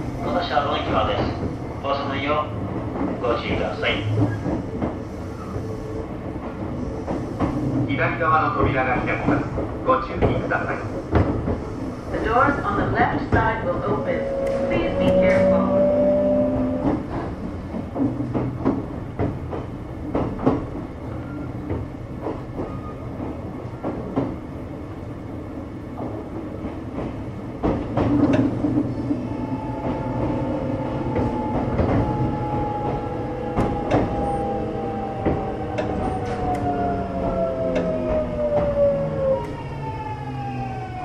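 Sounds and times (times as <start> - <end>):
train low rumble: 0.0 - 41.0
train wheels clicking over rail joints: 8.5 - 11.8, 16.7 - 24.6, 25.9 - 38.8.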